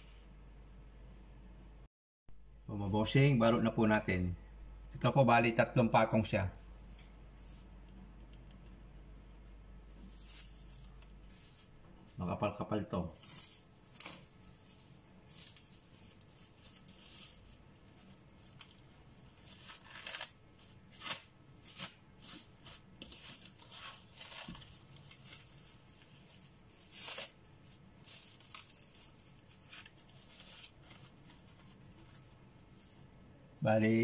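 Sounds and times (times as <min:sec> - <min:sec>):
plastic cling wrap crinkling: 0:09.9 - 0:12.2, 0:12.9 - 0:32.8.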